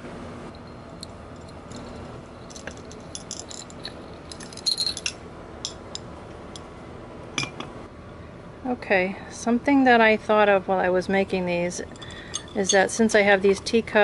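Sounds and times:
metal chains and clips clinking: 0:00.6 - 0:05.2, 0:11.9 - 0:13.0.

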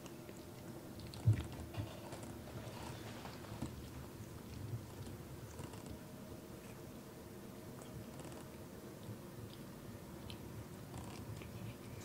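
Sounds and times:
cat licking paw: 0:07.8 - 0:12.0.

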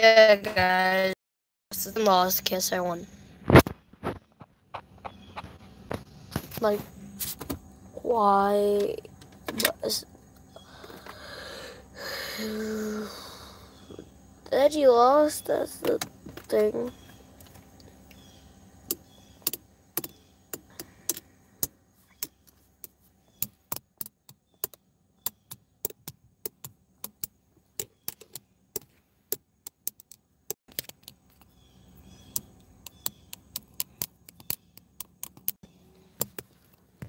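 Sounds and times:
faint car interior hum: 0:01.7 - 0:03.4, 0:04.8 - 0:37.0
sharp clicks and taps: 0:18.8 - 0:31.6, 0:32.3 - 0:36.8.

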